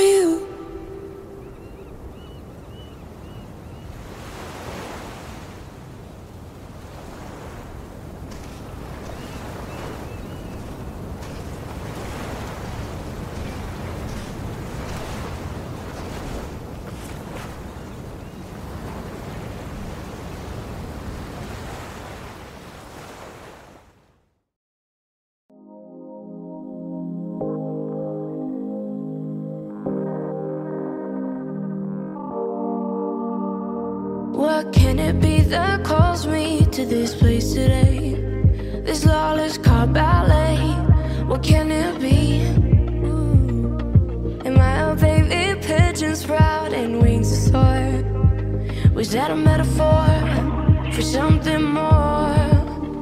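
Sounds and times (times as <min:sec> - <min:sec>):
ocean surf washing on shore: 0:00.0 - 0:24.0.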